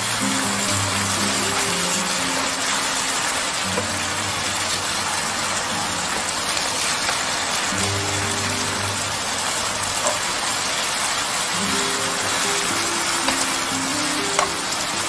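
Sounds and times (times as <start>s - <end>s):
meat sizzling in a pan: 0.0s - 15.0s
soft background music: 0.0s - 15.0s.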